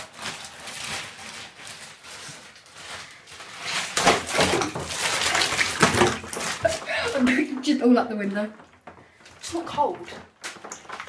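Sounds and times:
ice cubes rustling in a bag: 0.0s - 7.4s
ice splashing into water: 3.7s - 7.4s.

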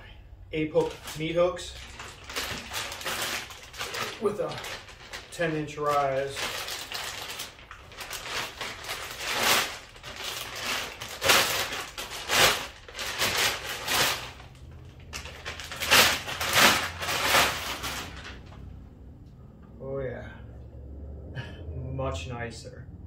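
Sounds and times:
plastic bag crinkling: 0.6s - 18.7s.

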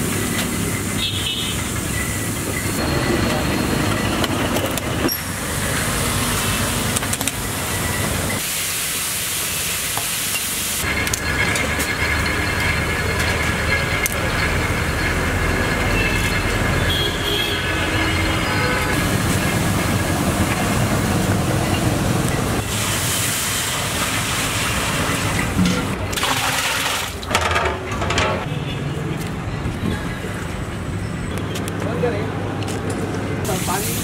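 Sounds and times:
hot oil sizzling in a pot: 5.1s - 16.2s, 19.0s - 25.6s, 33.4s - 34.0s.

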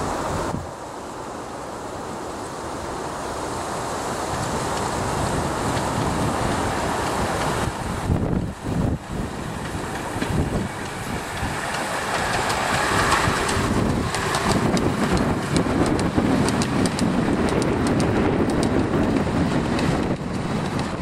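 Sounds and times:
miniature steam train passing: 0.0s - 21.0s
wagon wheels clicking on track: 4.3s - 21.0s.

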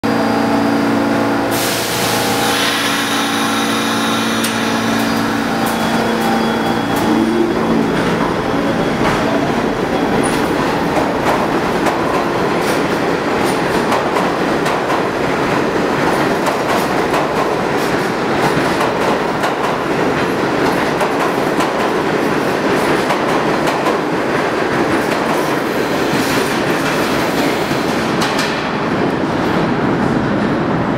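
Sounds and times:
train motor whine rising: 0.6s - 11.2s.

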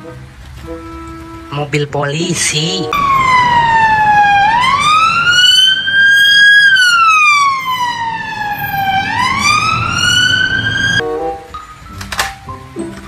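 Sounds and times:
street traffic noise: 0.0s - 13.0s
police siren wailing: 2.4s - 11.0s.

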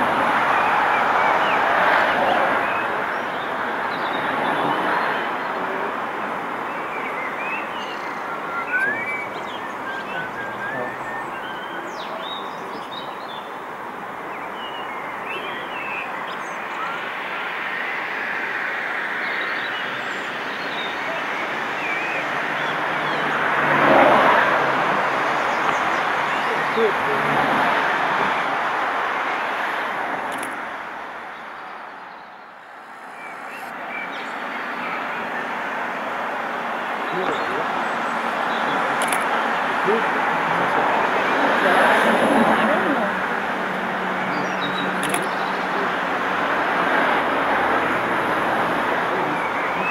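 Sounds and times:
small birds chirping: 2.6s - 23.6s, 30.3s - 35.9s, 44.2s - 46.0s.

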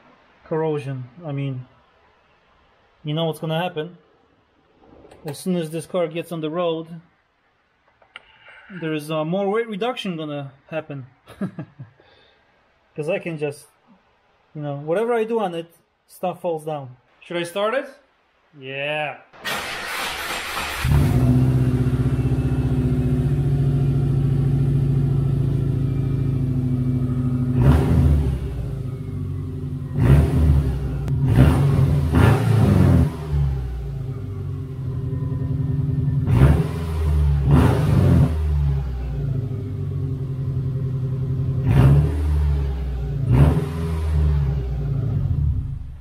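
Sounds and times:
car engine idling and revving: 19.9s - 46.0s.

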